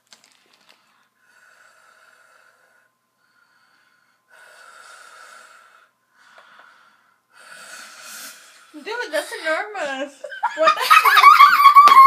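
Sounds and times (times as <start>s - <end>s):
person breathing heavily through nose: 0.7s - 8.9s.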